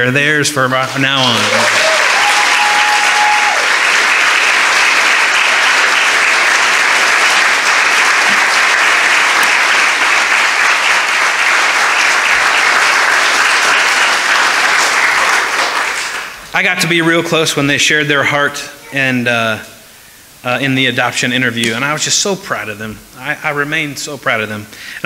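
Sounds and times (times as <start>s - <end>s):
people applauding: 1.1s - 16.4s.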